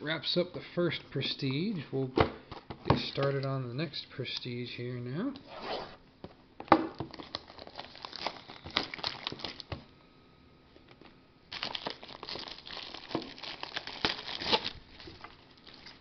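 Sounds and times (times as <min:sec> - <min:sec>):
plastic wrap crinkling: 0:07.0 - 0:09.8, 0:11.5 - 0:16.0.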